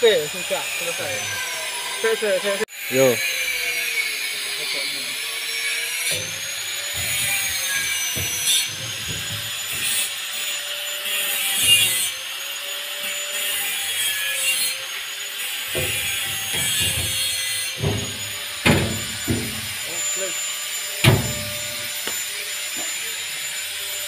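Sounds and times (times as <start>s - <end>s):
rasping strokes: 5.6s - 22.1s
dull knocks on steel grille: 6.1s - 10.0s, 15.7s - 19.8s, 21.0s - 21.8s
steady wavering whine: 17.8s - 23.4s.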